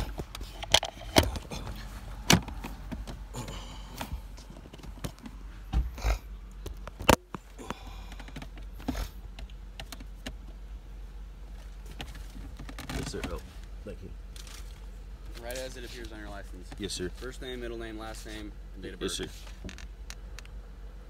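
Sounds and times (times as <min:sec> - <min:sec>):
phone handling clicks and rubbing: 0:00.0 - 0:01.5.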